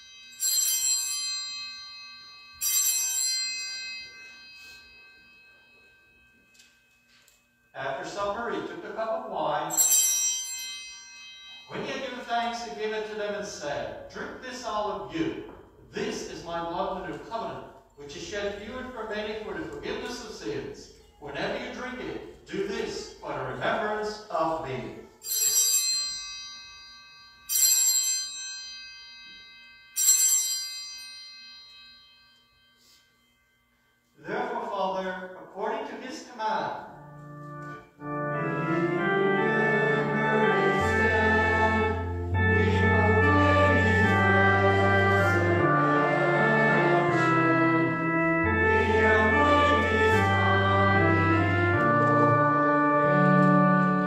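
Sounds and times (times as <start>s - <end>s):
small bell ringing: 0.0s - 8.2s, 9.7s - 12.6s, 25.0s - 34.2s
organ playing slow chords: 36.6s - 54.0s.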